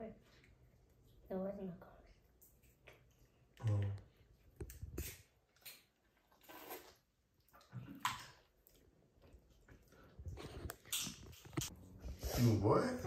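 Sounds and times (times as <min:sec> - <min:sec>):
wet squishing and sucking: 0:04.7 - 0:12.6.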